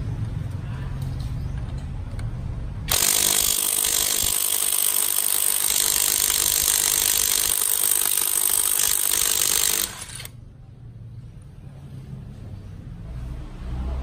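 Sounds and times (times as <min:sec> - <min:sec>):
impact wrench hammering: 0:02.9 - 0:10.3.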